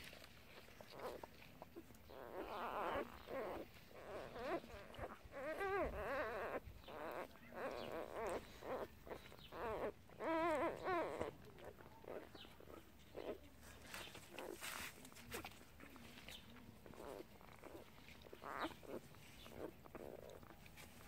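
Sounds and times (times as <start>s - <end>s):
puppies squeaking and whimpering: 0.5s - 15.6s, 16.2s - 21.0s
puppy wavering cries: 2.2s - 13.4s, 17.0s - 20.5s.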